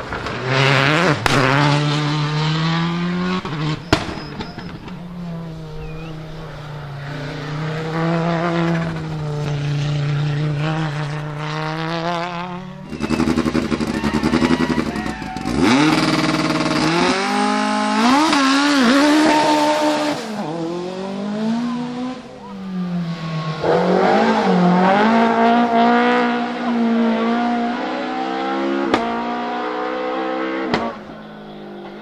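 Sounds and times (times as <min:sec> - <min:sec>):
rally car engines revving: 0:00.0 - 0:32.0
sharp crack: 0:01.2 - 0:01.6.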